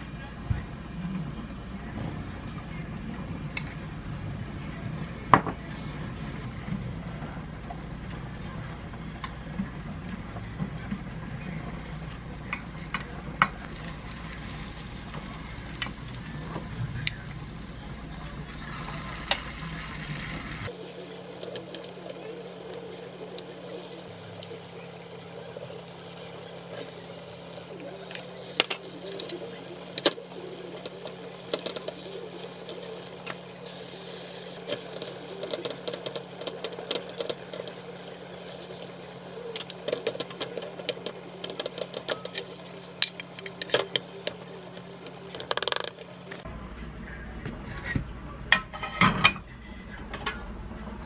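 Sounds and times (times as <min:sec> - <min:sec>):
egg sizzling in a pan: 0:13.6 - 0:46.4
utensils clicking against pan: 0:27.9 - 0:46.4.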